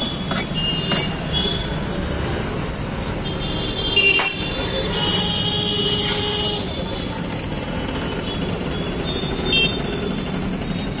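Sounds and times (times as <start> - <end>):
busy road traffic: 0.0 - 11.0
vehicle horn: 9.0 - 9.9.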